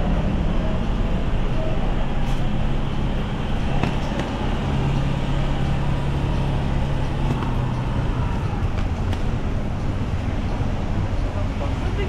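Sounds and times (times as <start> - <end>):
vehicle engine humming: 0.0 - 12.0.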